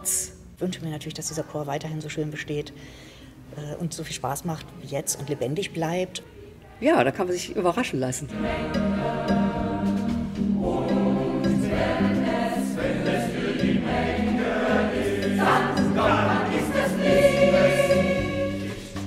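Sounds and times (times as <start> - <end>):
choir singing: 8.3 - 19.0.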